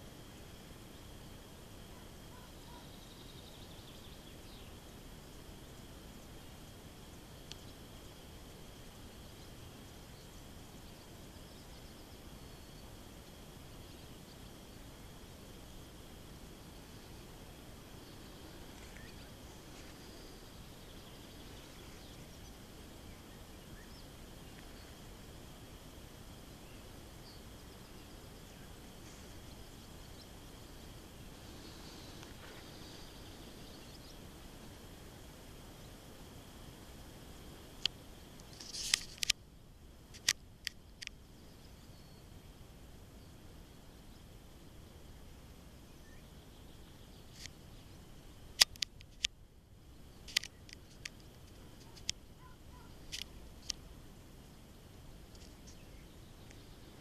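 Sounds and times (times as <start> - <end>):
faint steady high hum: 0.0 - 57.0
low background hiss: 0.0 - 57.0
faint bird chirps: 1.8 - 8.1, 16.6 - 25.1, 26.5 - 34.3, 41.2 - 42.4, 45.8 - 48.1, 51.6 - 53.8, 55.4 - 57.0
short sharp clicks and snaps: 48.6 - 49.4.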